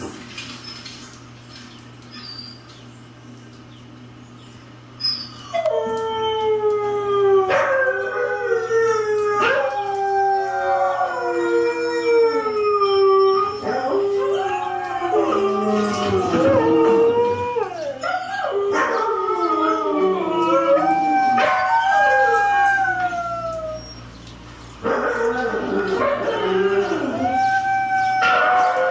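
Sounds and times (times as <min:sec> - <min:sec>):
huskies howling from tv: 0:05.0 - 0:24.2, 0:24.8 - 0:28.9
husky howling: 0:05.4 - 0:24.2, 0:24.8 - 0:28.9.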